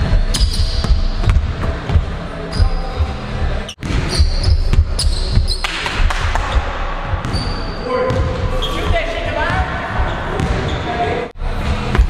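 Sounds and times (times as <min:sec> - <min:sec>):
sneaker squeaks: 0:00.3 - 0:01.4, 0:02.4 - 0:11.1.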